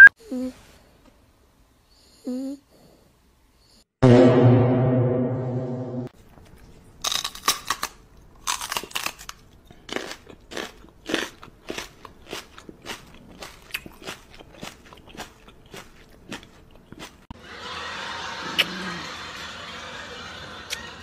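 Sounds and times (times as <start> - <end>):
loud low buzzing tone: 4.0 - 6.1.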